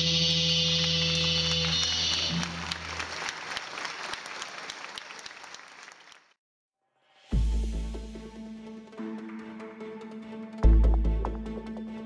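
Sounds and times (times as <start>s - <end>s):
audience applauding: 0.7s - 6.4s.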